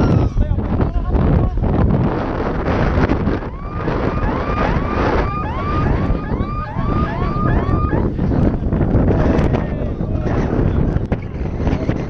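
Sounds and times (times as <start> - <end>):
siren yelping: 0.0 - 0.4, 3.2 - 8.4
wind buffeting microphone: 0.0 - 12.0.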